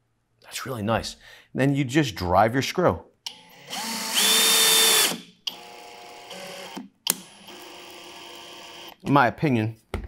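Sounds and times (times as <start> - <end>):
drill motor whining: 3.3 - 9.0.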